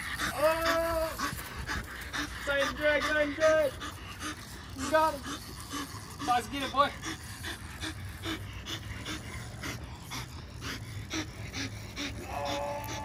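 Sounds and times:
dog panting hard: 0.0s - 13.0s.

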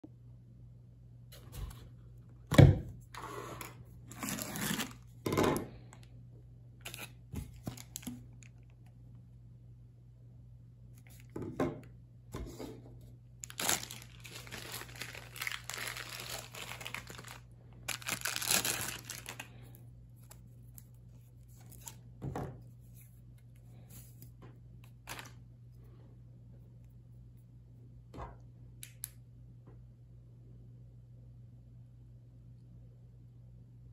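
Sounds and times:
plastic crinkling and tearing: 4.0s - 5.1s, 6.8s - 8.7s, 13.4s - 20.9s, 25.0s - 25.4s.

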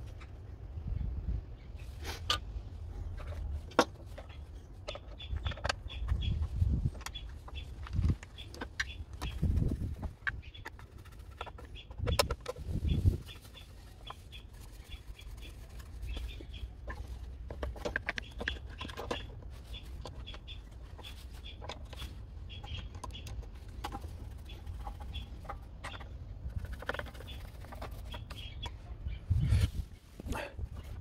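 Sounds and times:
birds chirping: 0.2s - 31.0s
clicks and knocks from handling plastic: 16.4s - 28.4s.

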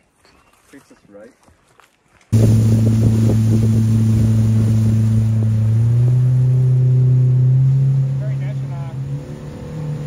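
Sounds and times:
outboard boat motor droning: 2.4s - 10.0s.

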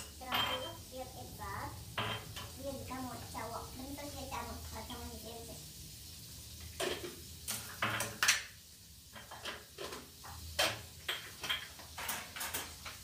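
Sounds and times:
kitchen items knocking and clinking: 0.0s - 0.9s, 1.9s - 2.6s, 6.8s - 13.0s.

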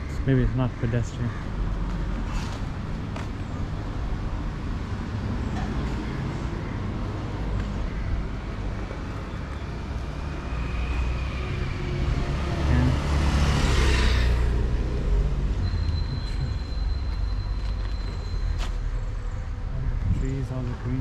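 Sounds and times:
low traffic rumble: 0.0s - 21.0s
vehicle passing: 9.8s - 17.4s.

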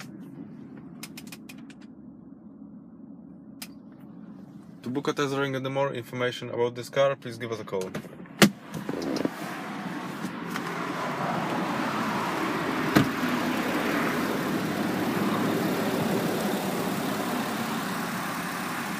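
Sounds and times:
diesel engine idling: 10.3s - 18.9s
car door shutting click: 12.9s - 13.2s.

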